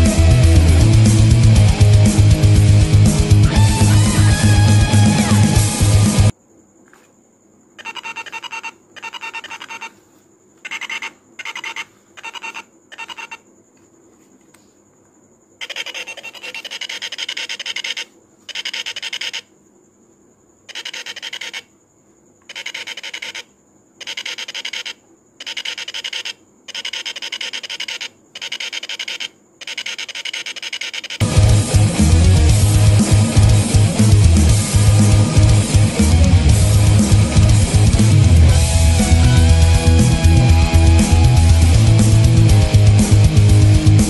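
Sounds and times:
doorbell loudspeaker buzzing: 3.5s - 5.9s.

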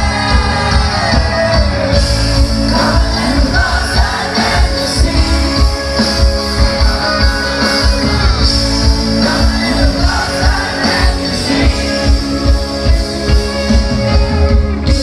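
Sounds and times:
live rock band: 0.0s - 15.0s.

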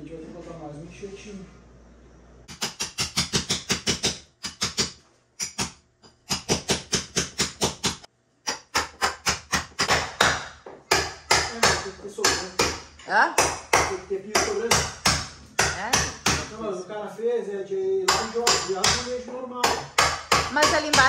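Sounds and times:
hammer driving nails into wood: 2.5s - 12.8s, 13.4s - 16.5s, 18.1s - 21.0s.

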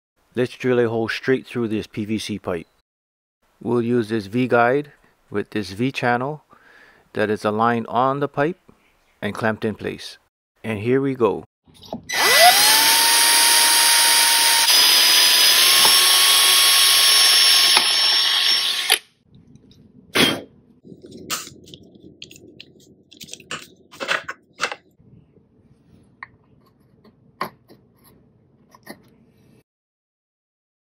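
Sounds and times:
cordless drill whining: 12.1s - 19.1s.

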